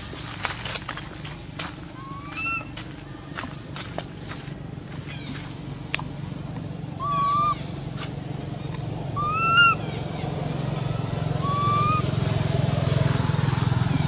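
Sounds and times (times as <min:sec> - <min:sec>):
steady low hum: 0:00.0 - 0:14.0
macaque calls: 0:02.0 - 0:02.7, 0:07.0 - 0:07.8, 0:09.1 - 0:12.1.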